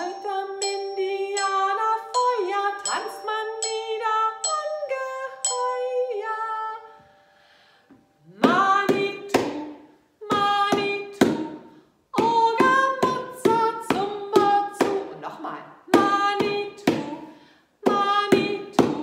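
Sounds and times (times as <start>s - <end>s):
woman singing: 0.0s - 7.0s, 8.2s - 19.0s
glockenspiel notes: 0.0s - 8.2s.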